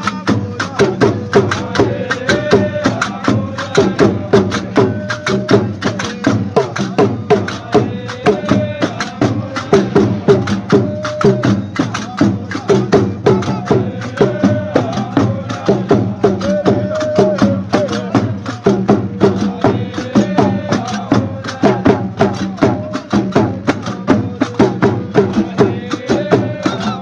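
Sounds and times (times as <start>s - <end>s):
drum: 0.0s - 27.0s
men singing together: 0.0s - 27.0s.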